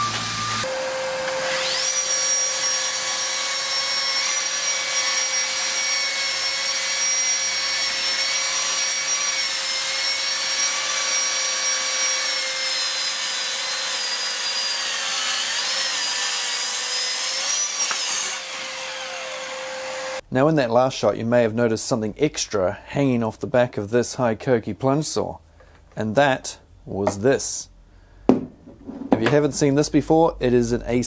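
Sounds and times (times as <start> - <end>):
dust extractor humming: 0.0 - 2.6
track saw cutting timber: 0.0 - 20.2.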